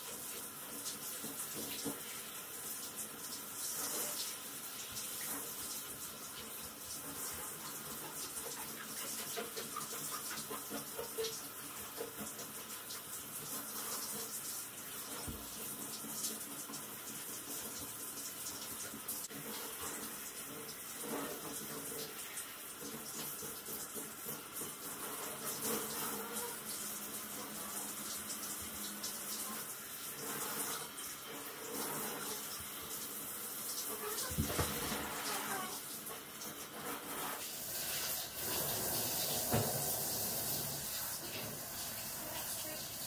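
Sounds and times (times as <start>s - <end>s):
shower head spraying water: 22.8s - 43.0s.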